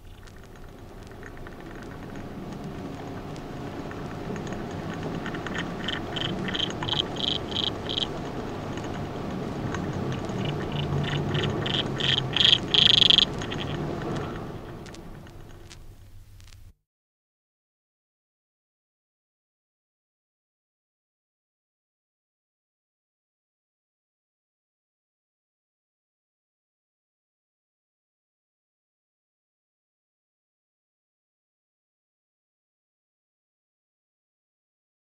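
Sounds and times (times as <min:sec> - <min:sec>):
steady low rumble: 0:00.0 - 0:16.8
insect chirping rapidly: 0:05.3 - 0:08.2, 0:10.3 - 0:16.1.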